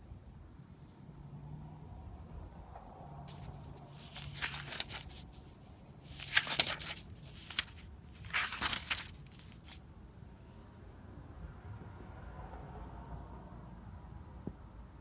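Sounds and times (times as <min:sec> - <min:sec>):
paper pages turning: 0:03.3 - 0:09.8.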